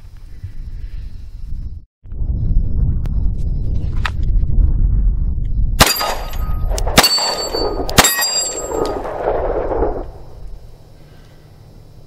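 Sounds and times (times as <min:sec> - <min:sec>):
steel plate target clanging: 0:05.8 - 0:09.0
pistol shots: 0:05.8 - 0:10.0.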